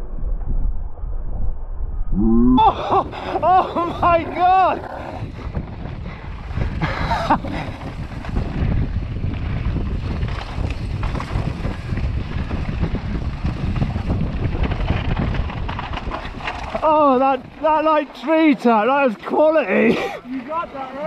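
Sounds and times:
wind buffeting microphone: 0.0 - 18.7
brief higher sound: 2.1 - 2.6
bike tyres and frame rattling: 3.0 - 21.0.

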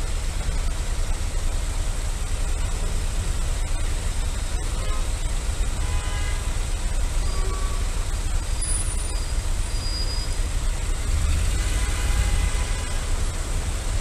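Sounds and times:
deep engine rumble: 0.0 - 5.8.

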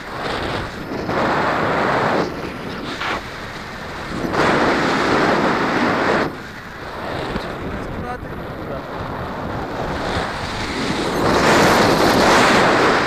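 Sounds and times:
wind noise on microphone: 0.0 - 13.0.

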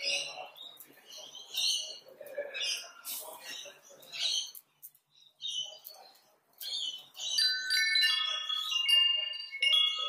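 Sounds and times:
chiming bell-like music: 7.2 - 10.0.

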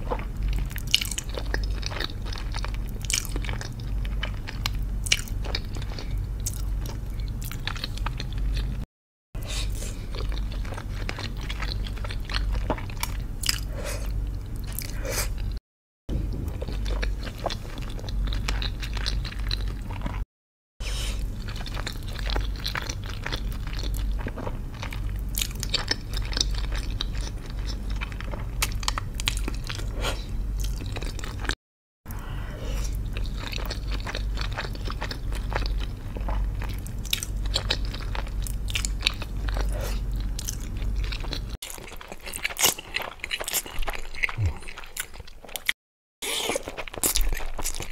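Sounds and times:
steady low hum: 0.0 - 8.8, 9.4 - 20.2, 32.1 - 45.6
close chewing of soft pasta: 0.0 - 20.2, 20.8 - 47.9.

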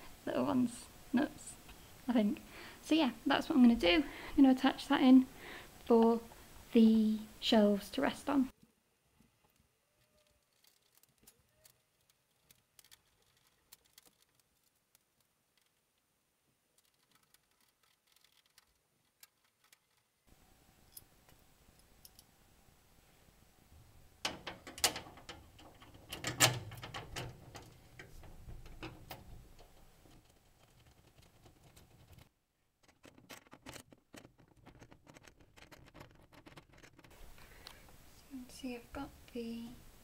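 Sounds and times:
small metal clicks and knocks: 9.4 - 15.8, 16.8 - 20.1, 20.9 - 22.3, 24.2 - 37.8.

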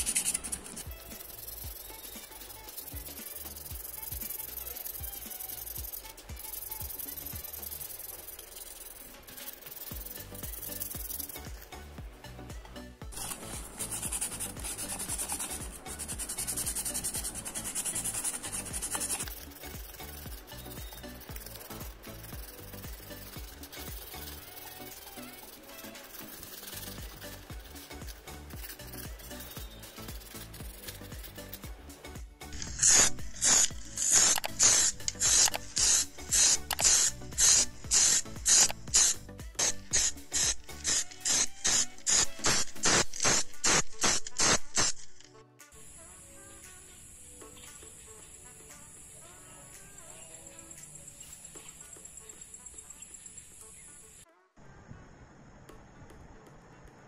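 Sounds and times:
sandpaper scratching: 0.0 - 11.8, 13.1 - 31.7, 32.5 - 45.3
spray paint hissing bursts: 0.0 - 11.9, 13.1 - 45.3
faint background music with beat: 0.0 - 54.3.

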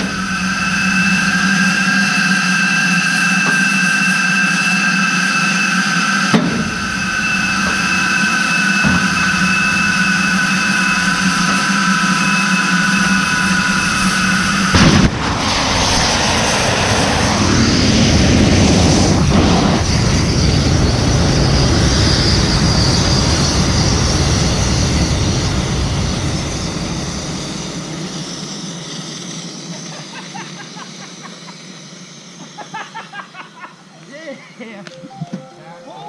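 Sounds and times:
sudden loud blast: 0.0 - 3.7, 6.2 - 21.8
gas rushing and venting: 0.0 - 28.7.

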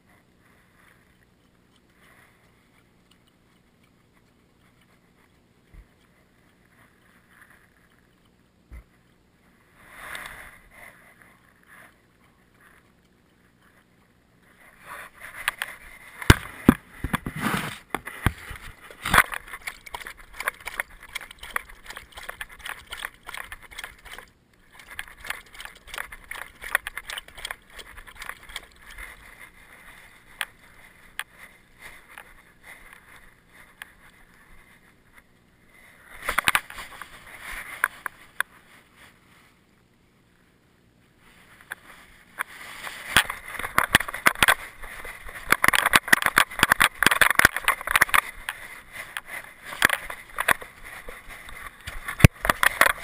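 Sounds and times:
dog lapping water: 18.3 - 30.8.

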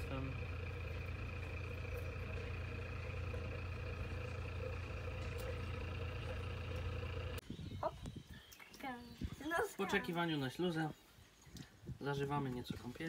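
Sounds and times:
boat engine droning: 0.0 - 7.4.

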